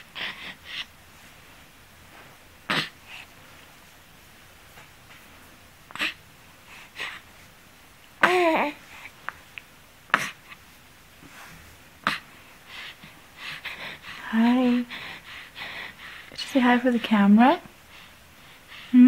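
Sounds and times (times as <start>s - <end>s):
baby breathy noises: 2.7s - 3.3s, 5.9s - 7.3s, 8.2s - 9.2s, 10.1s - 10.7s, 12.0s - 16.3s
baby cooing: 5.9s - 6.2s, 8.2s - 8.8s.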